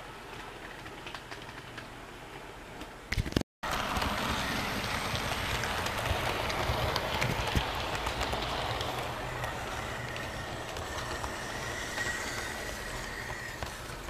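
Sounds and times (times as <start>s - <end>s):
wheels clicking on rail: 0.3s - 2.0s, 3.7s - 14.0s
model train running: 3.7s - 14.0s.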